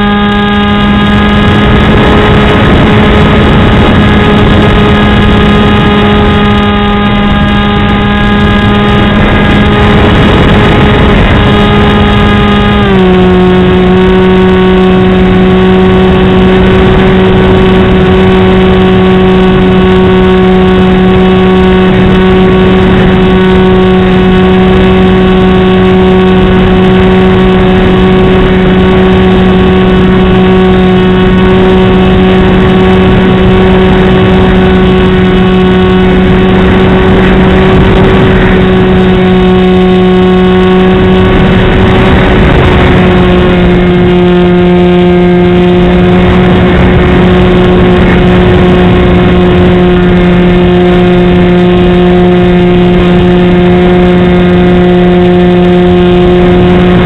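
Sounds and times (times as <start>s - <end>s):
rush of air: 0.0s - 44.6s
electric motor and propeller buzzing: 0.0s - 57.0s.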